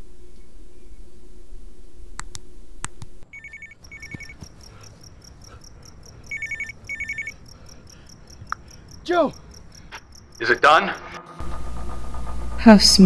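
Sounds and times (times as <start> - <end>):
low steady hum: 0.0 - 13.0
faint clicks: 2.2 - 10.4
crickets chirping: 3.2 - 12.7
telephone ringing electronic trill: 3.4 - 4.4, 6.2 - 7.5.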